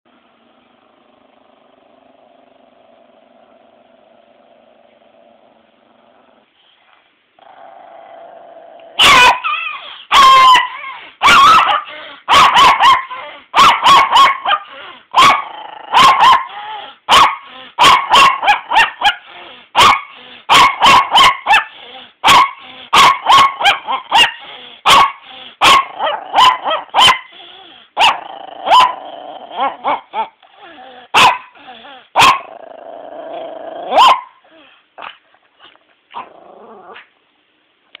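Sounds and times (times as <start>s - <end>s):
dog growling: 0.1s - 6.6s, 7.4s - 9.0s, 14.5s - 17.8s, 21.6s - 23.0s, 23.7s - 37.1s
dog barking sharply: 9.0s - 9.5s, 10.1s - 15.4s, 19.8s - 21.6s, 31.2s - 31.4s
dog barking: 9.0s - 19.2s, 19.8s - 27.3s, 28.0s - 29.0s, 31.1s - 31.5s, 32.2s - 32.5s, 33.9s - 34.4s.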